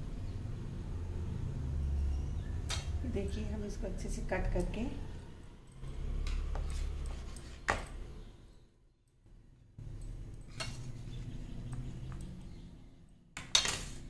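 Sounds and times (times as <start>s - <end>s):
kitchen handling noise: 13.4s - 14.0s.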